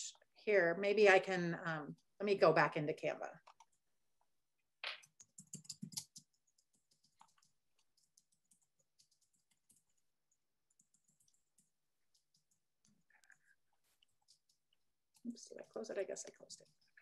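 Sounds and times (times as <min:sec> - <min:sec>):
keyboard keystrokes: 0:04.9 - 0:09.8.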